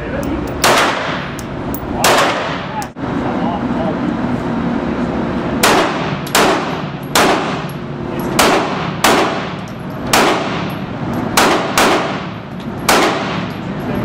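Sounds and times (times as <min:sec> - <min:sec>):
handgun shots with echo: 0:00.6 - 0:01.3, 0:05.6 - 0:07.7, 0:08.4 - 0:10.7, 0:11.4 - 0:13.6.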